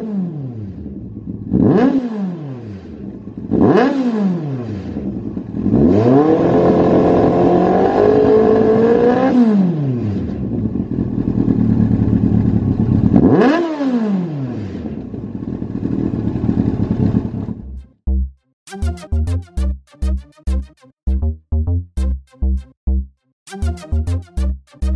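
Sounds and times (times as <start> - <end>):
motorcycle engine revving and idling: 0.0 - 17.8.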